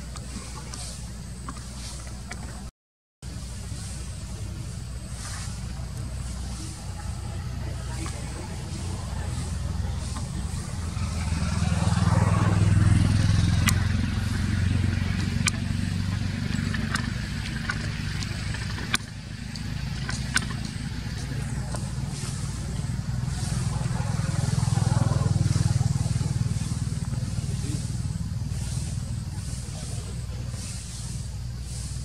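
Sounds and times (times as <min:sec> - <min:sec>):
motor rumbling: 0:00.0 - 0:32.0
sharp clicks: 0:13.5 - 0:14.0.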